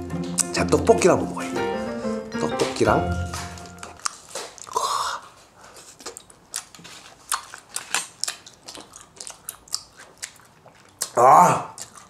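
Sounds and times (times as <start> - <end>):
wet chewing clicks and smacks: 4.0 - 4.8, 5.9 - 12.0.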